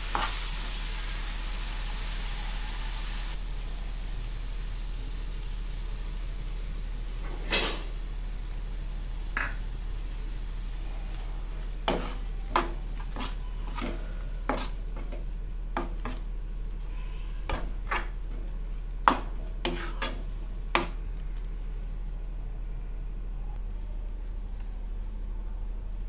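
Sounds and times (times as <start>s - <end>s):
metal spoon scraping a pan: 11.8s - 15.2s, 17.1s - 18.2s, 19.1s - 21.0s.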